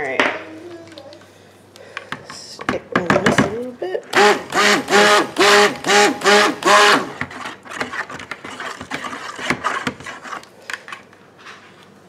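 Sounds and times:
stick blender whining in bursts: 4.1s - 7.5s
blender knocking and scraping: 4.1s - 10.5s.

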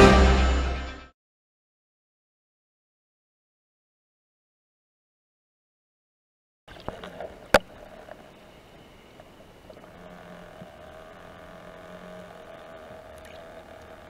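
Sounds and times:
underwater clicks: 6.7s - 8.4s, 9.2s - 14.0s
steady underwater hum: 6.7s - 14.0s.

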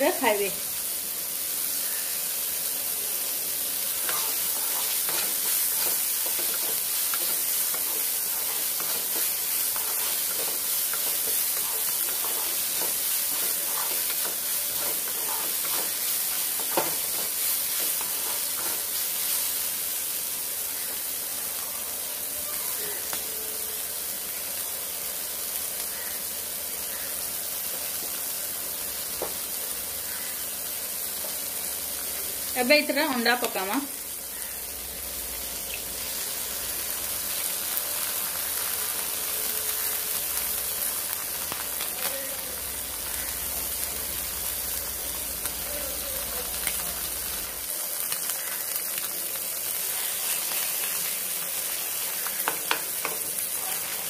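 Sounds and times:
vegetables sizzling in hot oil: 0.0s - 54.0s
spatula stirring and scraping: 3.9s - 19.5s.

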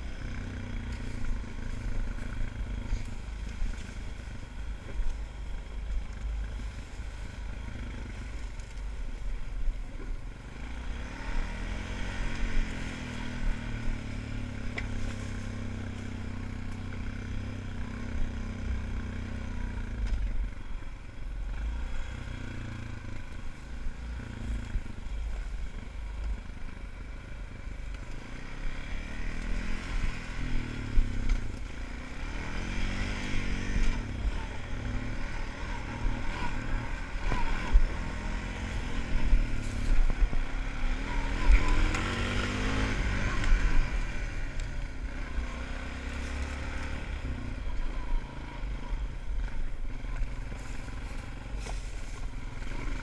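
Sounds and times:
atv engine running: 0.0s - 53.0s.

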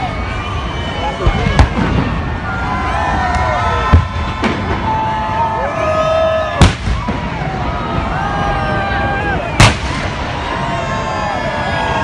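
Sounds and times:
crowd voices: 0.0s - 12.0s
fireworks banging: 1.2s - 5.5s, 6.6s - 11.2s.

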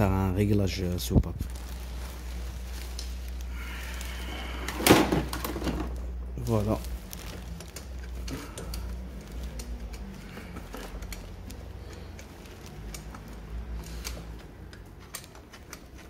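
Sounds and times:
tools clicking on engine parts: 7.5s - 16.0s.

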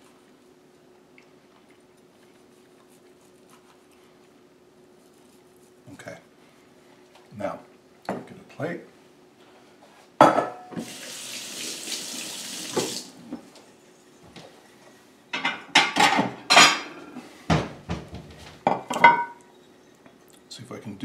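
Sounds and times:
ceramic dishes clattering: 10.2s - 10.7s, 15.4s - 16.9s, 18.7s - 19.4s
kitchen tap running: 10.8s - 13.2s.

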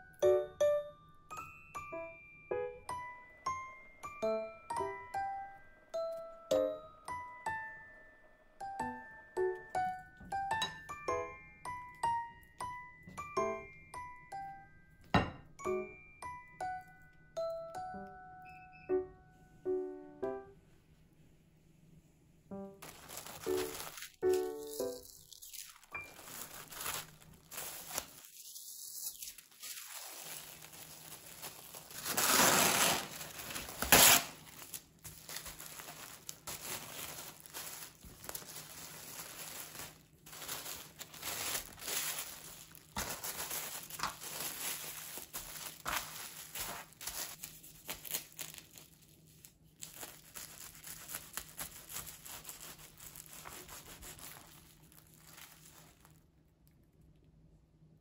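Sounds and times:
cling wrap crinkling: 22.7s - 56.9s.

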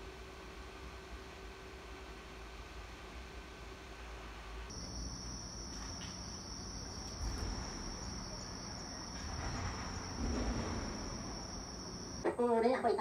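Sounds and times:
crickets trilling: 4.7s - 12.3s
low background rumble: 4.7s - 12.6s.

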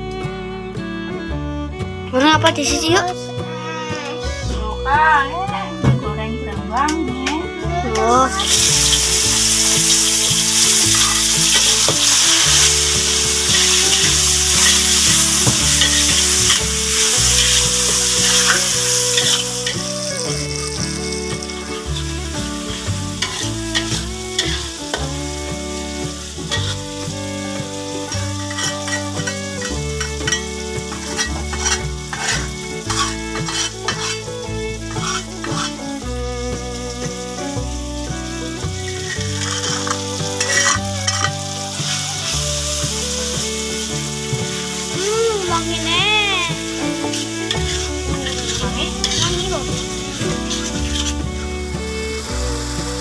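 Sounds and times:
background music: 0.0s - 53.0s
vegetables sizzling in hot oil: 8.3s - 53.0s
spatula stirring and scraping: 8.4s - 25.1s, 25.8s - 27.0s, 27.6s - 35.8s, 38.6s - 44.7s, 46.6s - 51.4s.

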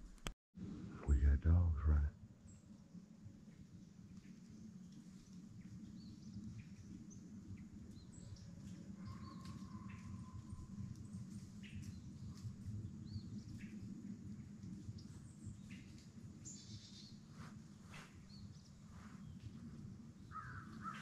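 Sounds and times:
low steady rumble: 0.0s - 2.2s
small birds chirping: 14.8s - 21.0s.

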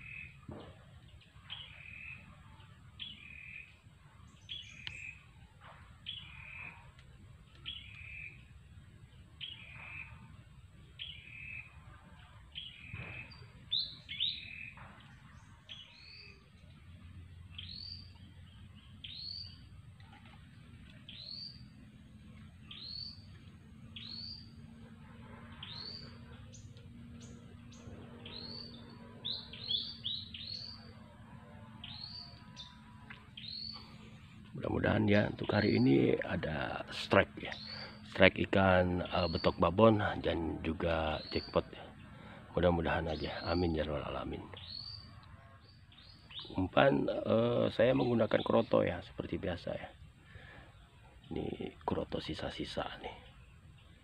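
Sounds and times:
bird two-part calls: 6.0s - 8.5s, 22.6s - 24.6s, 25.4s - 31.0s, 31.8s - 34.4s, 44.5s - 46.6s.

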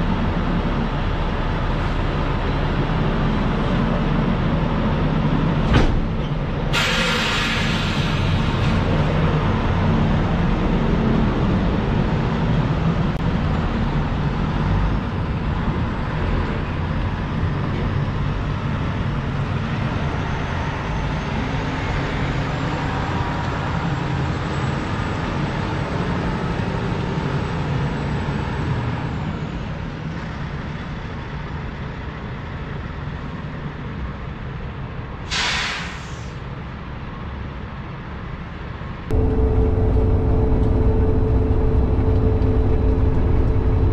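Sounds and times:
diesel truck rumble: 0.0s - 30.2s, 39.1s - 43.9s
air brake hiss: 6.7s - 8.8s, 35.3s - 36.4s.

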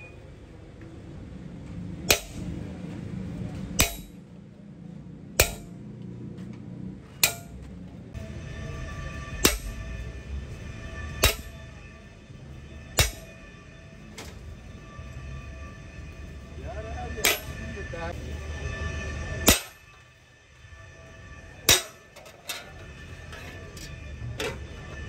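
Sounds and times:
hammer striking chisel on metal: 2.1s - 2.5s, 3.8s - 4.2s, 5.4s - 5.7s, 7.2s - 7.6s, 9.2s - 9.9s, 11.2s - 11.6s, 13.0s - 13.4s, 17.2s - 17.6s, 19.4s - 19.8s, 21.7s - 22.7s
metal ringing: 2.1s - 2.6s, 3.8s - 4.3s, 5.4s - 5.8s, 7.2s - 7.6s, 8.8s - 10.2s, 11.0s - 11.8s, 12.9s - 14.5s, 17.0s - 17.8s, 19.4s - 20.0s, 21.6s - 25.0s.

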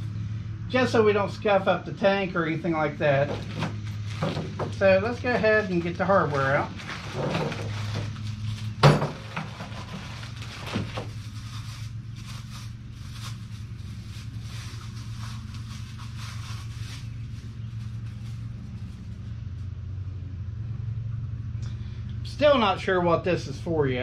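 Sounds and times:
steady low hum: 0.0s - 24.0s
plastic bags crinkling: 3.3s - 19.2s.

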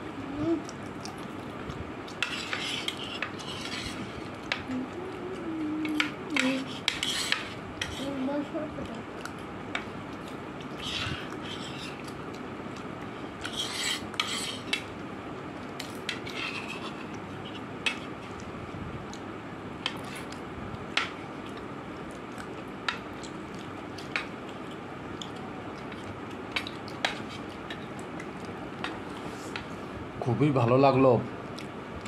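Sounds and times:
cutlery scraping plastic plate: 2.2s - 4.1s.

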